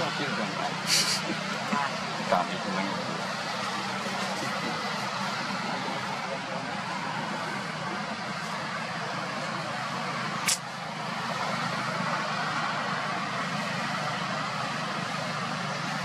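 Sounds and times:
outdoor background rush: 0:00.0 - 0:16.0
sharp click: 0:10.4 - 0:10.6.

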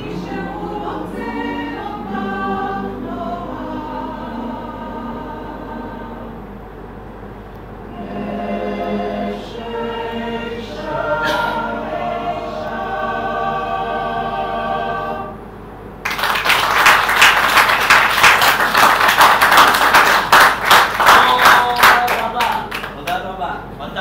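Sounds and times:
mixed choir singing chords: 0:00.0 - 0:07.0, 0:07.7 - 0:16.0
audience applause: 0:16.0 - 0:23.0.

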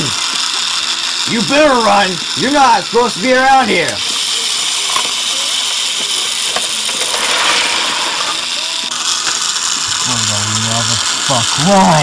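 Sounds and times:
toy train motor whirring: 0:00.0 - 0:12.0.

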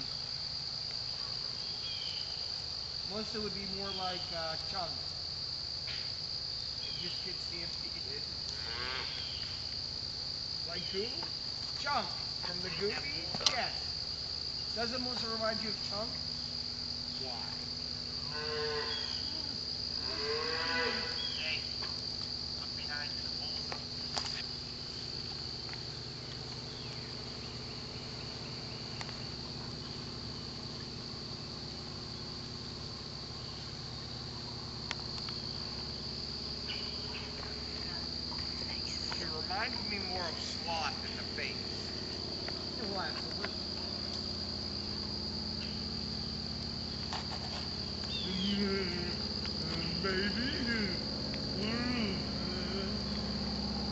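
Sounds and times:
insect chorus: 0:00.0 - 0:53.9
cattle lowing: 0:47.4 - 0:53.8.

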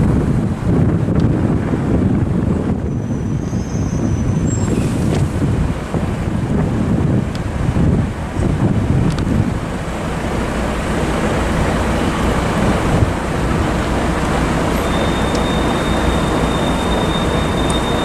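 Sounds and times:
road traffic rumble: 0:00.0 - 0:18.0
wind on microphone: 0:00.0 - 0:18.0
high steady whine: 0:08.1 - 0:18.0.

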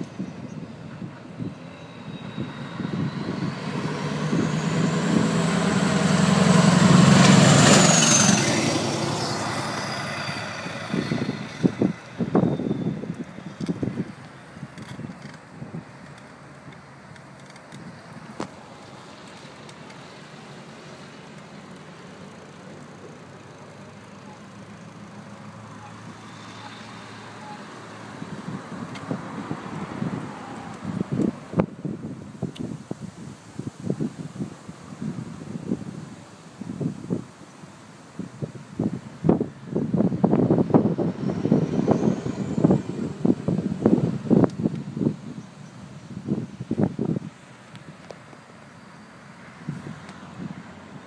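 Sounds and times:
high whine dropping in pitch: 0:01.5 - 0:13.0
truck driving past: 0:01.6 - 0:13.6, 0:40.6 - 0:44.4.

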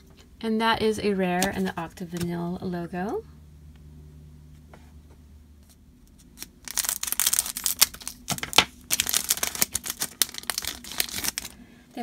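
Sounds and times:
plastic wrapper crackling and tearing: 0:06.1 - 0:11.6.

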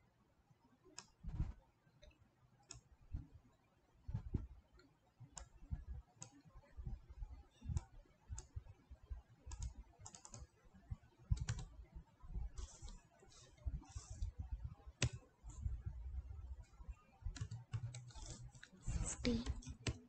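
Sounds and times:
mouse and keyboard clicks: 0:09.5 - 0:10.5, 0:11.3 - 0:11.7, 0:12.6 - 0:15.7, 0:17.3 - 0:18.8.

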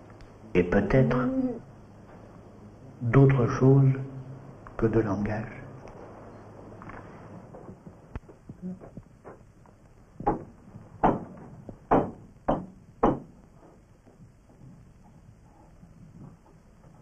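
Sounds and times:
sharp knocks: 0:10.2 - 0:13.4.

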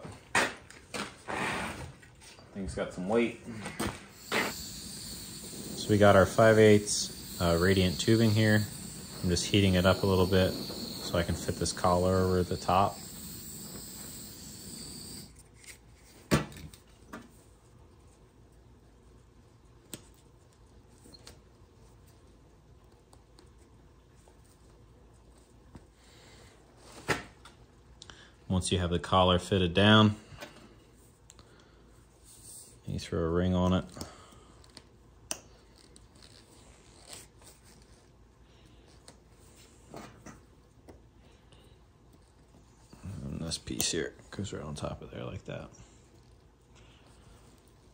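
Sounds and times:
heat gun hissing: 0:03.0 - 0:15.4.

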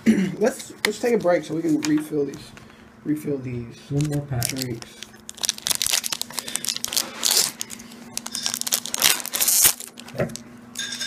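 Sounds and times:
foil wrapper ripping: 0:04.0 - 0:10.2
foil wrapper crinkling: 0:04.0 - 0:10.4.

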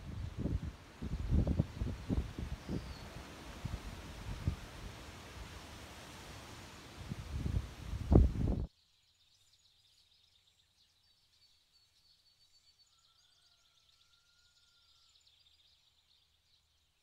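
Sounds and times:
wind buffeting microphone: 0:00.0 - 0:05.6, 0:07.0 - 0:08.7
faint high chirps: 0:08.7 - 0:17.0.

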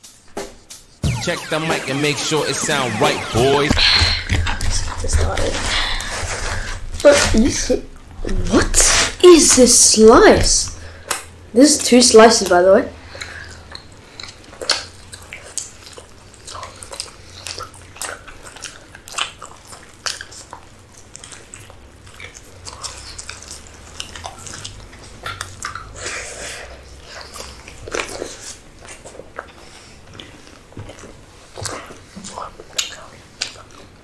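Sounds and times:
person chewing food: 0:13.1 - 0:26.0, 0:26.7 - 0:34.0.

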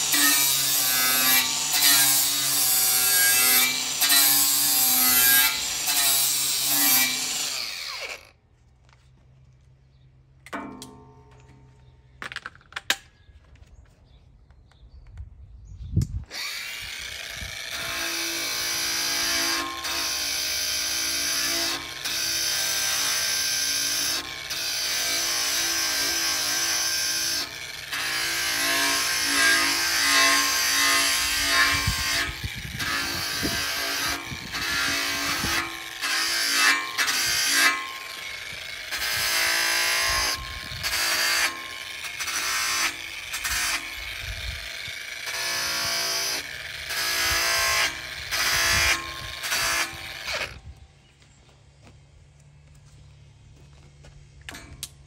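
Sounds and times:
angle grinder cutting steel: 0:00.0 - 0:08.4, 0:16.3 - 0:50.6.

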